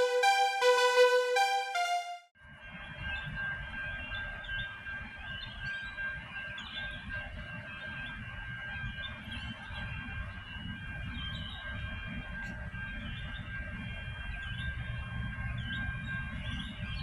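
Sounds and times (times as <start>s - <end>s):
level crossing warning bell: 0.0s - 2.3s.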